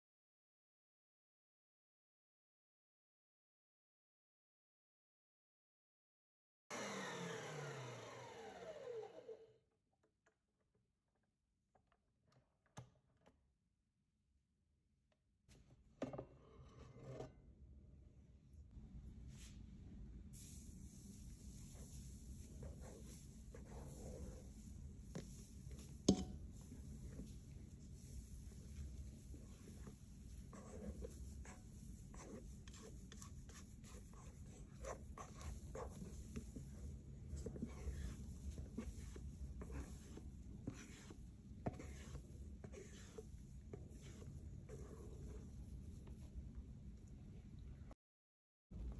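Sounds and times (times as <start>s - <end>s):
stand mixer whine spinning down: 6.7s - 9.6s
spatula scraping metal bowl: 37.3s - 45.4s.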